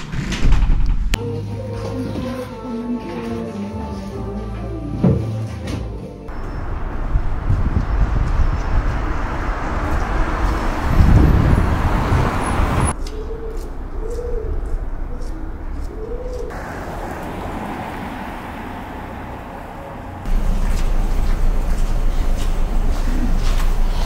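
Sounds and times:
loud street noise: 6.2s - 24.0s
pigeon cooing: 13.0s - 16.6s.

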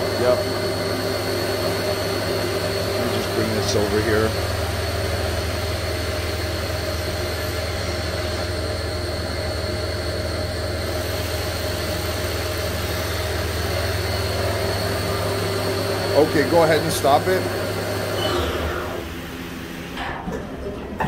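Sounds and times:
machine spindle hum with whine: 0.0s - 21.0s.

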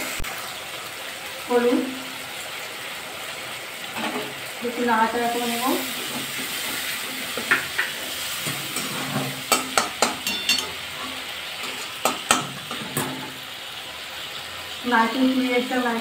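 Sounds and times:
spices sizzling in oil: 0.0s - 16.0s
metal spatula scraping pan: 4.0s - 4.4s, 5.4s - 13.4s
spatula clicking on pan: 9.5s - 10.8s, 11.6s - 13.1s.

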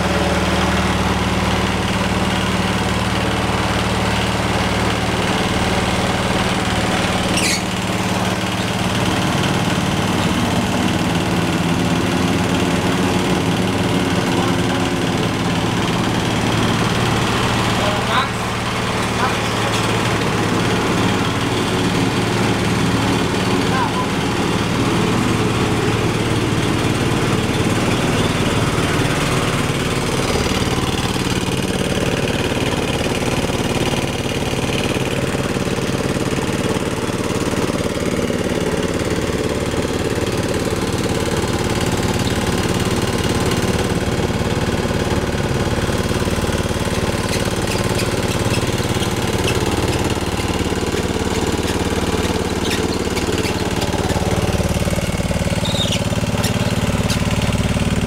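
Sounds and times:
stationary engine running: 0.0s - 58.0s
rice huller pulley turning: 40.2s - 58.0s.

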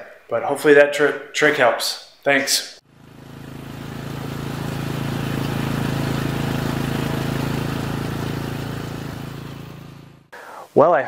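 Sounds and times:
riding lawn mower engine running: 2.8s - 10.3s.

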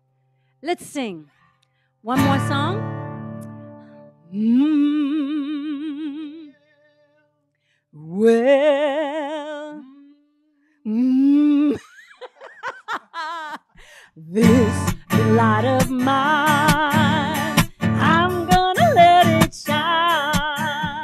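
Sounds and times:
woman singing wordless notes: 2.1s - 2.9s, 4.2s - 6.5s, 8.0s - 10.2s, 14.2s - 21.0s.

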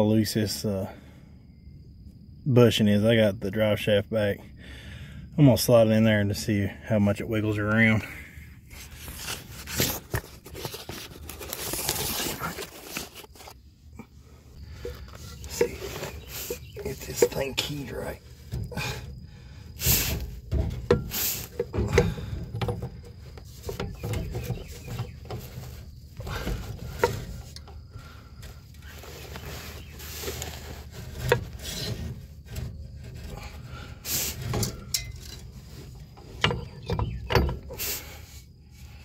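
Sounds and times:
metal knocks and rubbing: 14.6s - 19.0s, 19.8s - 37.9s.

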